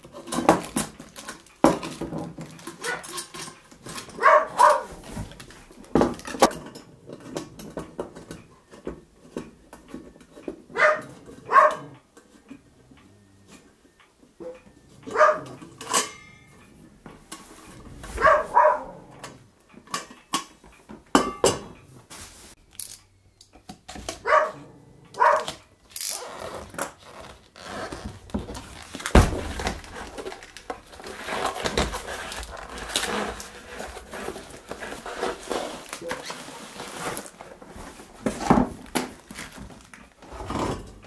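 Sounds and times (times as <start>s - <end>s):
dog yipping: 2.8s - 3.1s, 4.2s - 5.0s, 10.8s - 12.0s, 14.4s - 15.5s, 18.2s - 19.2s, 24.2s - 24.6s, 25.2s - 25.5s
metal clinks and knocks: 15.1s - 20.5s
paper and cardboard rustling: 26.9s - 41.0s.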